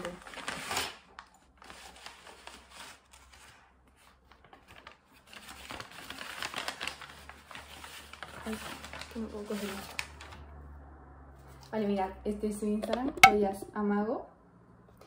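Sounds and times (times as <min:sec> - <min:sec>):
paper bag crinkling: 0:04.7 - 0:09.9.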